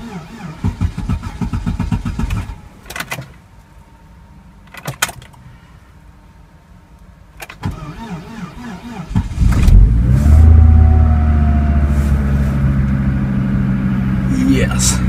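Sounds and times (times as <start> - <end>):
car engine idling: 9.2 - 15.0.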